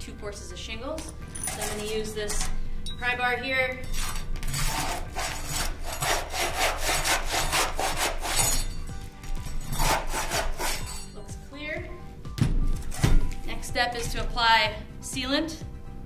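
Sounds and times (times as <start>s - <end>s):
pry bar scraping under shingles: 3.8s - 8.8s.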